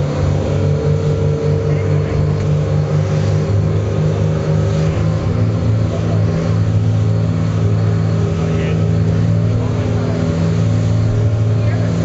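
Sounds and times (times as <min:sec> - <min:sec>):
motorboat engine running: 0:00.0 - 0:12.0
water rushing against hull: 0:00.0 - 0:12.0.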